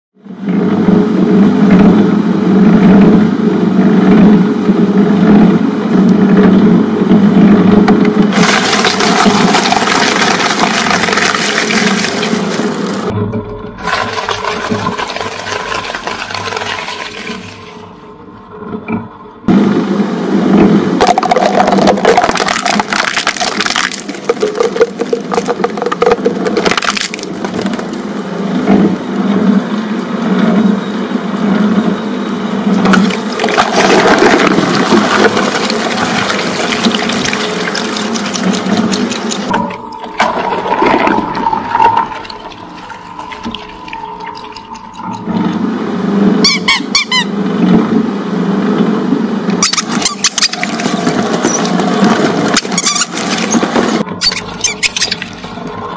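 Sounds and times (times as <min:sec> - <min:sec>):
shredder whine: 0:04.2 - 0:18.7, 0:19.5 - 0:46.4
can bursting with splashing liquid: 0:08.3 - 0:13.0, 0:21.0 - 0:27.8, 0:33.0 - 0:39.5
shredder crunching and cracking: 0:08.3 - 0:13.1, 0:13.8 - 0:17.6, 0:21.0 - 0:28.1, 0:32.9 - 0:39.5, 0:49.7 - 0:54.0
high squeaks: 0:46.4 - 0:47.3, 0:49.6 - 0:51.9, 0:52.5 - 0:55.6.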